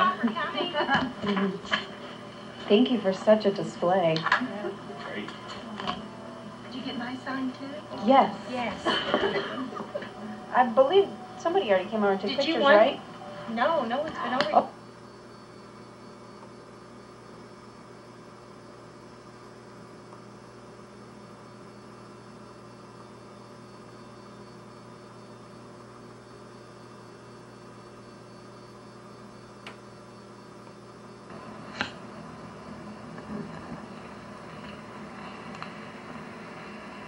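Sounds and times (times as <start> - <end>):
constant tones: 0.0 - 15.6
electrical mains hum: 0.0 - 37.0.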